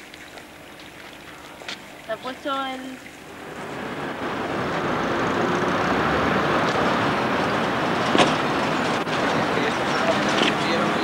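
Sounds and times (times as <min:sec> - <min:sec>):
street traffic rushing by: 0:03.2 - 0:11.0.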